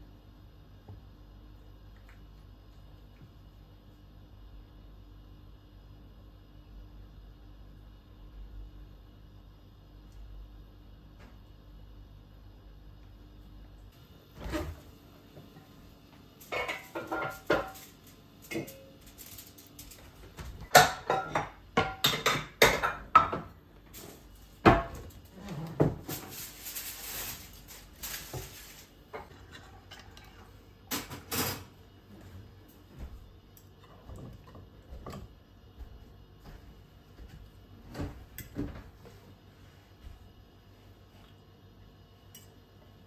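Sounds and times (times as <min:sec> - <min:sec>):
dishes and utensils clinking: 0:16.5 - 0:19.1.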